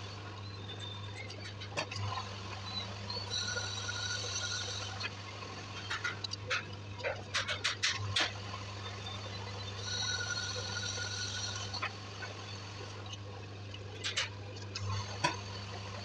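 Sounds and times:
thin whine: 0.0 - 6.3, 8.2 - 13.3
metal lathe humming: 2.0 - 6.3, 8.0 - 13.1.

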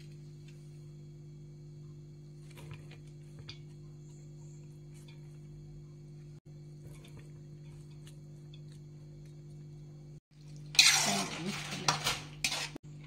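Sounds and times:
faint steady hum: 0.0 - 10.8
spoon scraping metal pot: 10.8 - 12.8.

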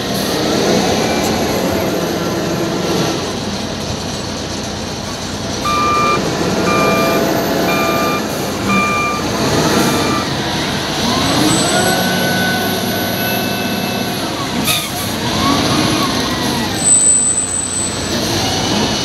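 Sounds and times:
diesel engine running: 0.0 - 19.0
reversing alarm beeping: 5.6 - 10.4, 11.1 - 14.4, 15.3 - 18.1.

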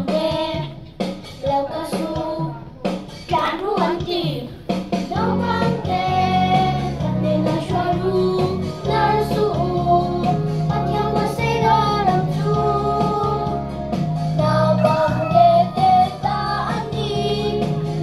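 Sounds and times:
backing track with guitar and bass: 2.8 - 18.0
children singing in unison: 14.5 - 18.0.

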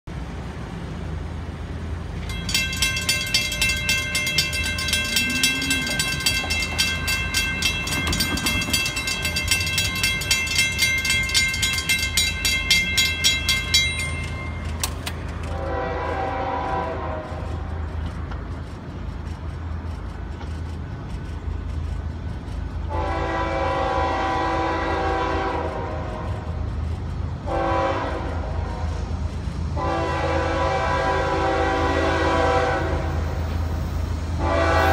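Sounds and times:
crossing warning bell ringing: 2.1 - 16.8
locomotive horn blasts: 15.5 - 17.7, 22.9 - 26.5, 27.4 - 29.0, 29.8 - 33.3, 34.4 - 34.9.

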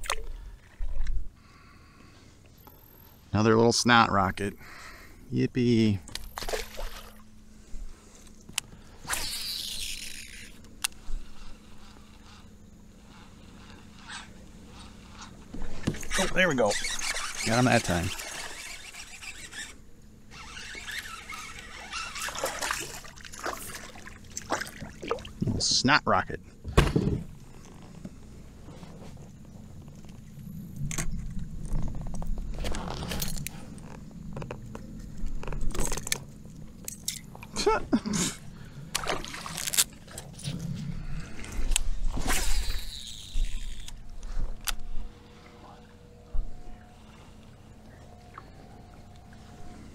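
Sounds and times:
low steady rumble: 0.1 - 49.9
fishing reel spool whirring: 8.1 - 24.4, 38.4 - 49.9.

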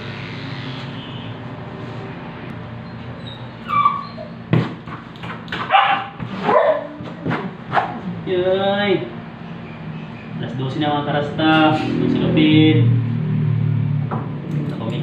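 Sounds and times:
electric pet clipper humming: 0.0 - 1.4
small dog whining: 2.8 - 4.5
small dog yipping and barking: 3.3 - 4.4.

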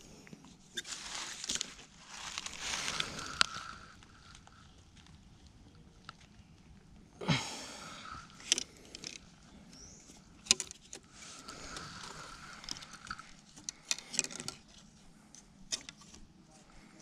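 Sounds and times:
sharp handling clicks: 10.4 - 14.6.

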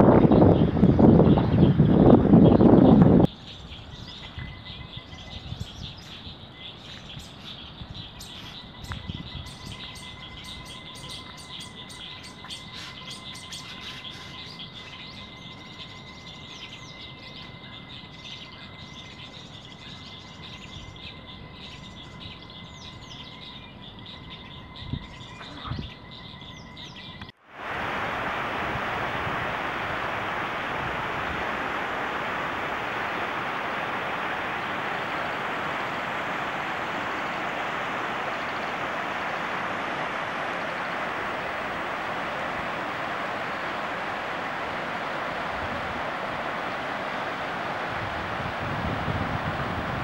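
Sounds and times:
small birds chirping: 0.0 - 27.4
faint steady hiss: 27.2 - 50.0.

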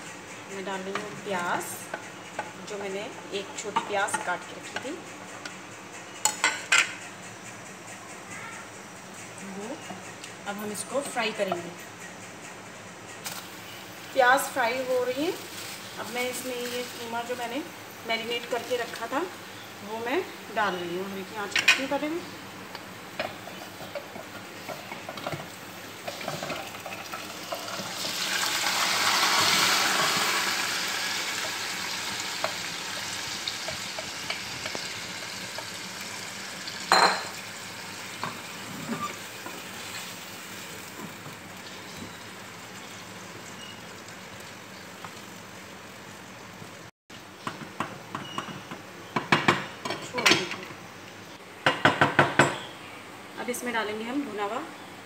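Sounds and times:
meat sizzling in hot oil: 25.9 - 46.9.

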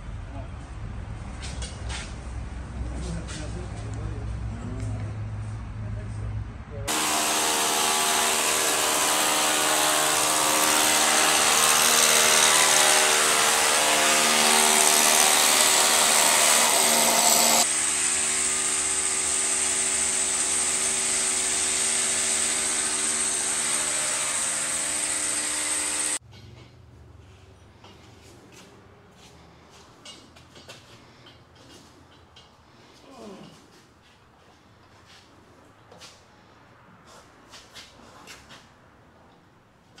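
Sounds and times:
hammer drill boring into concrete: 6.9 - 26.2.

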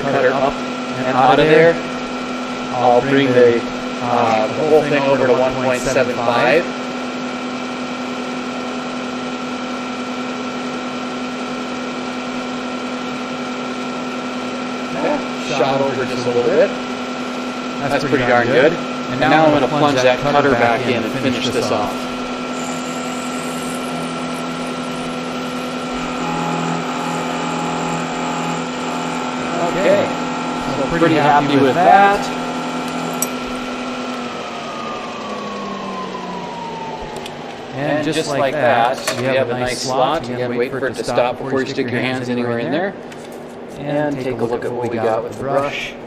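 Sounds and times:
milling machine spindle humming: 0.0 - 46.0.

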